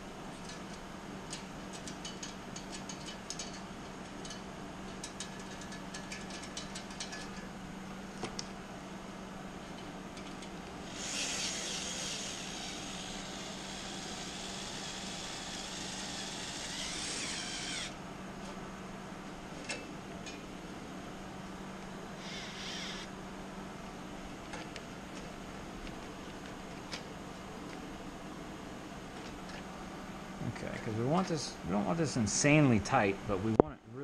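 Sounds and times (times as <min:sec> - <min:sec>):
cordless screwdriver running: 0:10.9 - 0:18.0, 0:22.2 - 0:23.1.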